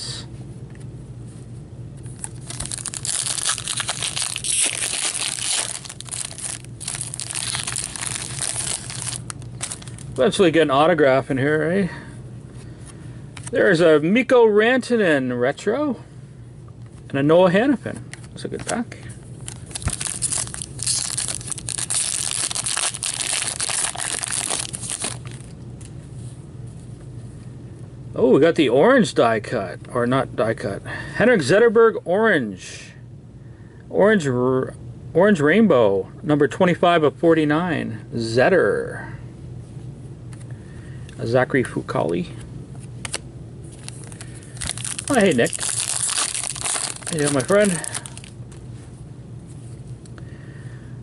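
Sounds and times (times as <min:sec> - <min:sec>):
foil wrapper crinkling: 0:02.2 - 0:10.1, 0:19.4 - 0:25.5, 0:43.1 - 0:48.4.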